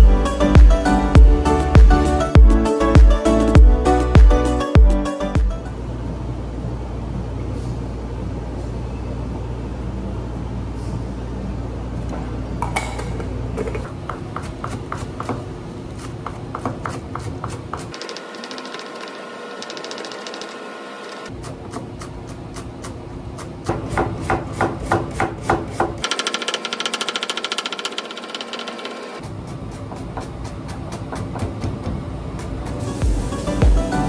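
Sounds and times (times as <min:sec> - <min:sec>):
low machine hum: 0:00.0 - 0:16.5.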